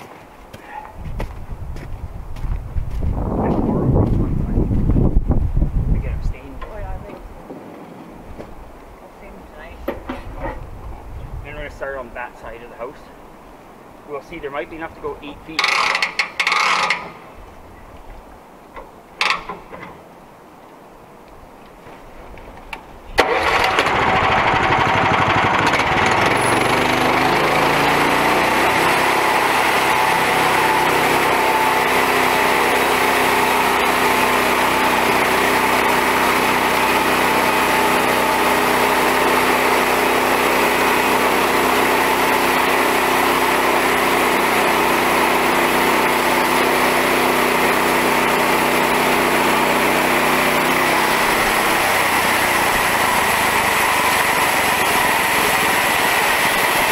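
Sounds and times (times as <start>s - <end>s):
band saw cutting log: 15.6s - 17.2s, 23.2s - 56.9s
small gasoline engine running: 15.6s - 17.2s, 23.2s - 56.9s.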